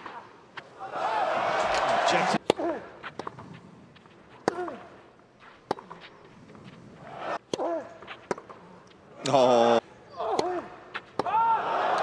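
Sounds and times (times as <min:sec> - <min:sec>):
tennis ball struck by racket: 0:02.4 - 0:03.6, 0:04.4 - 0:04.9, 0:05.6 - 0:06.1, 0:07.4 - 0:08.6.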